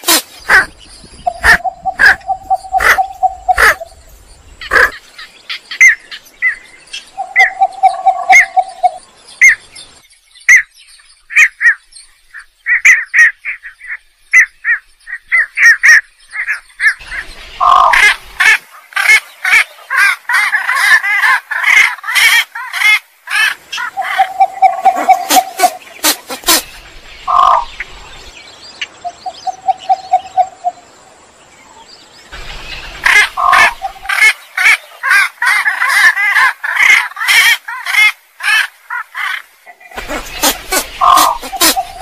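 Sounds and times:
heron calls: 0.1 - 3.9, 4.6 - 5.0, 17.6 - 18.2, 27.3 - 27.7, 33.0 - 38.1, 39.8 - 42.0.

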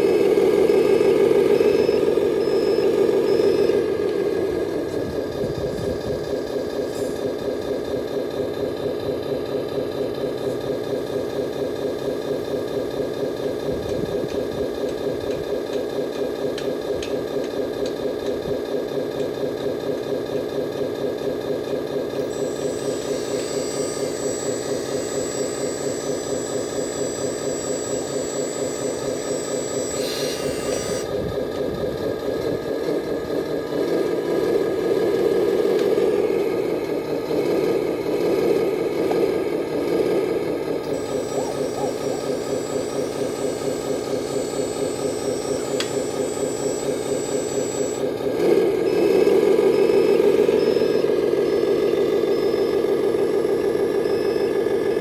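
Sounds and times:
diesel engine idling: 0.0 - 55.0
thin high whine: 22.2 - 31.2, 40.8 - 55.0.

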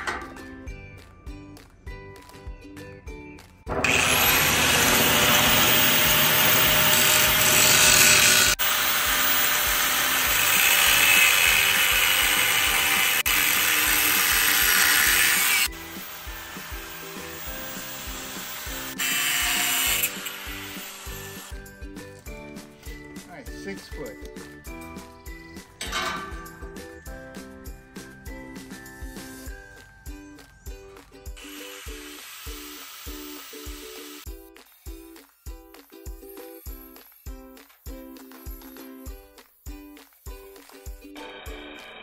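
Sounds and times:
angle grinder cutting steel: 3.8 - 21.6, 31.4 - 34.3.

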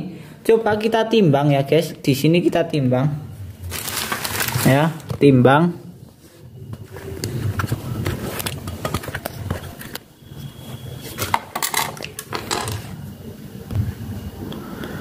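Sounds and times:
metal weights set down on tile floor: 11.2 - 12.9.

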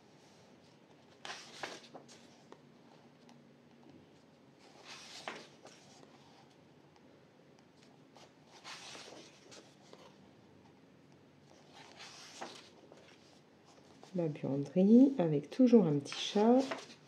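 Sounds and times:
paper pages rustling: 1.0 - 2.6, 4.6 - 6.6, 7.8 - 10.2, 11.5 - 14.2, 16.0 - 17.0.

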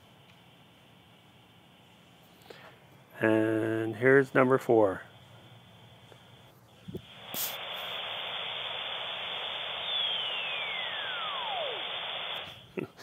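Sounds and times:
radio static hiss: 3.2 - 13.0
falling whistle tone: 9.4 - 12.5.

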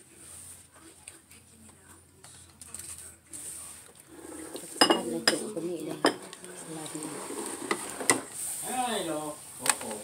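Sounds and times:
cutlery and dishes clinking: 4.2 - 8.3.

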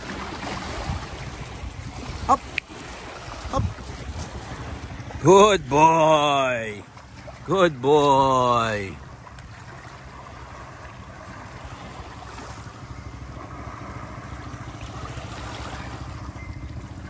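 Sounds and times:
wind on microphone: 0.0 - 5.2
waves lapping on pebbles: 0.0 - 17.0.

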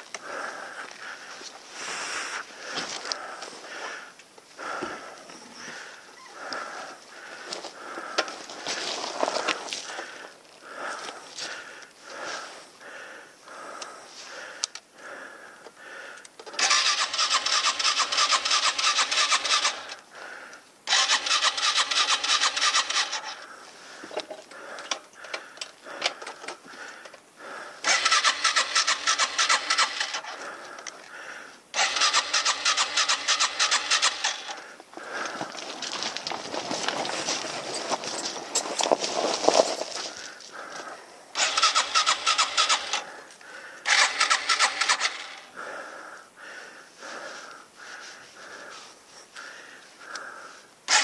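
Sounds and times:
motorcycle starter cranking engine: 16.4 - 20.0, 20.9 - 23.4, 27.8 - 30.4, 31.7 - 35.3, 41.3 - 43.2, 43.8 - 45.6.

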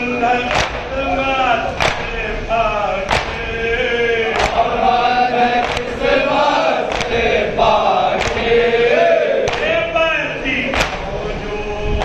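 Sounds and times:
men chanting in unison: 0.0 - 12.0
chest-beating slaps: 0.5 - 0.9, 1.8 - 2.2, 3.1 - 3.5, 4.4 - 4.7, 5.6 - 6.0, 6.9 - 7.4, 8.1 - 8.5, 9.4 - 9.8, 10.7 - 11.1.

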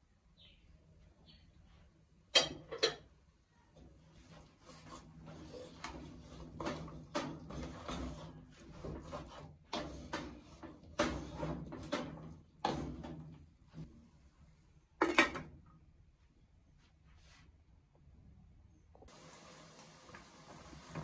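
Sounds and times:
wooden spatula scraping a pot: 3.8 - 13.9.

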